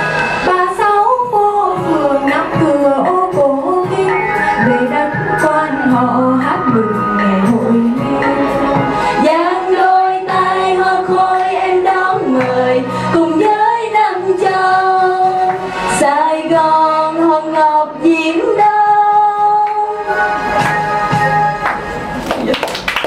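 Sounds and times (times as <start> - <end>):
backing music: 0.0 - 23.0
women singing: 0.4 - 21.3.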